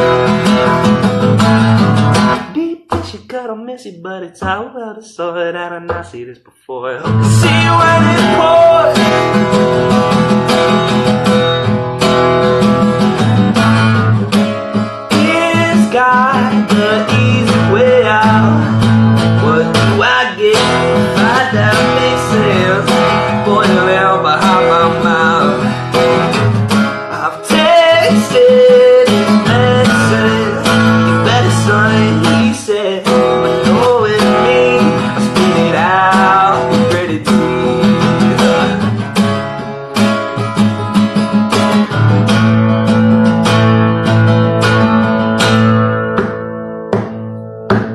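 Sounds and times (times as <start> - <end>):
acoustic guitar strumming: 0.0 - 47.9.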